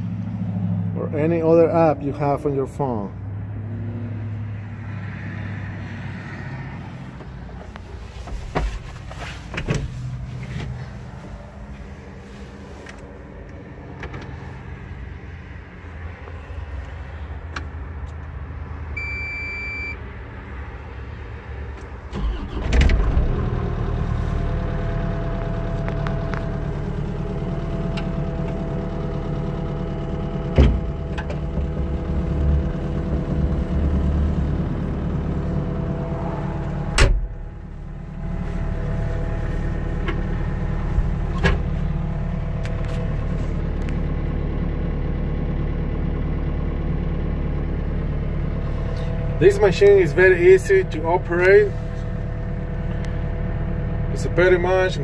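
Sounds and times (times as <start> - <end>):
diesel engine running: 0.0 - 55.0
short high beep: 19.0 - 20.0.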